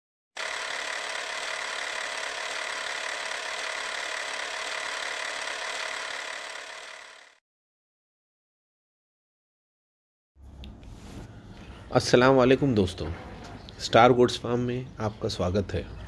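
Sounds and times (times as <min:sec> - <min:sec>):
steady mechanical noise: 0:00.4 - 0:07.4.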